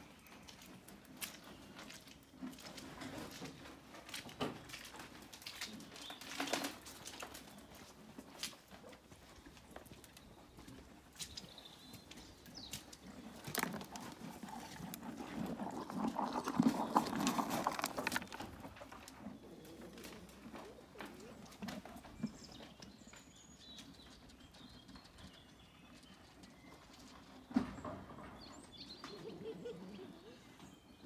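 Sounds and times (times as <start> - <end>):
horse feeding from bucket: 0.1 - 9.9, 11.0 - 23.8.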